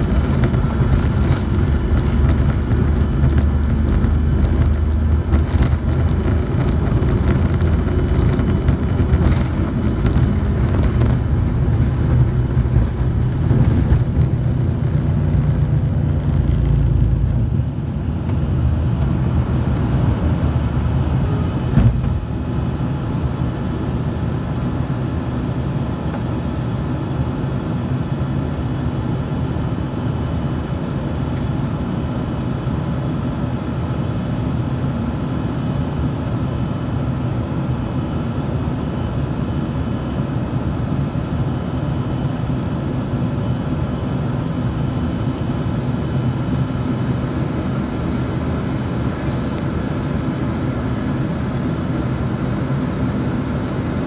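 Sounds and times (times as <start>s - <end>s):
jet engines roaring: 0.0s - 54.0s
wheels rumbling on runway: 0.0s - 54.0s
short thump: 21.7s - 22.2s.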